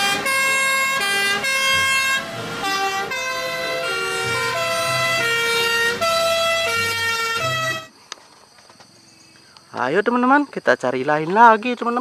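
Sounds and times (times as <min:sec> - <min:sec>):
fire engine sirens: 0:00.0 - 0:07.9.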